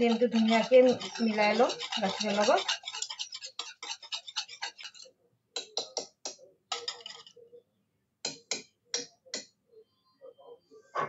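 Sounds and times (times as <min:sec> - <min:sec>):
whisk beating in plastic bowl: 0:00.0 - 0:05.0.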